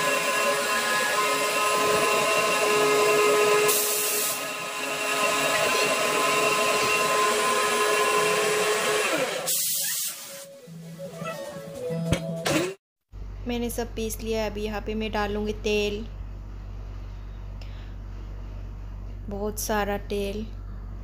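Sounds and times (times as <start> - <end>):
mixer grinder motor whining: 0.0 - 9.6.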